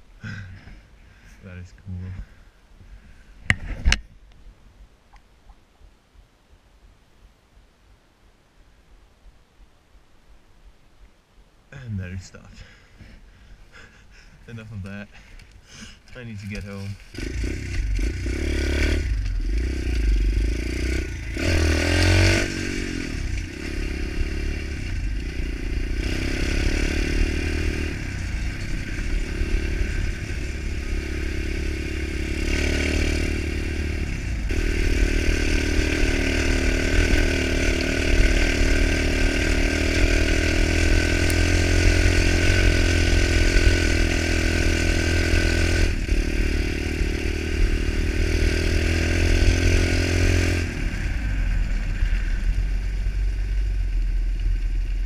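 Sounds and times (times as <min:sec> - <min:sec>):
small motorbike engine revving: 0:16.5 - 0:51.4.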